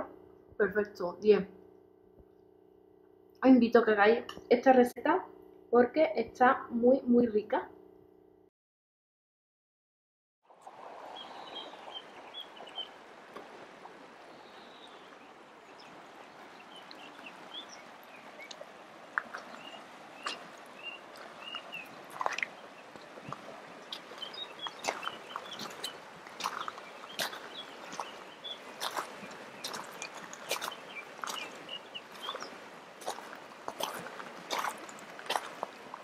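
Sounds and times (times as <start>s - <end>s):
river rushing over stones: 10.5s - 36.0s
small birds chirping: 11.2s - 13.0s, 14.2s - 36.0s.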